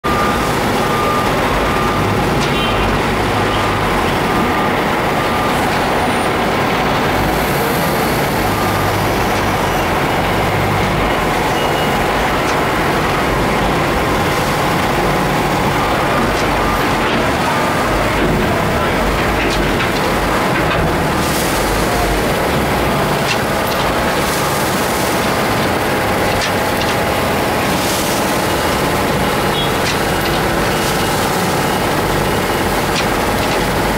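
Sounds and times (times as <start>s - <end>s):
wheel loader engine: 0.0s - 33.9s
bagging machine running: 0.1s - 33.9s
short high beep: 11.4s - 12.0s.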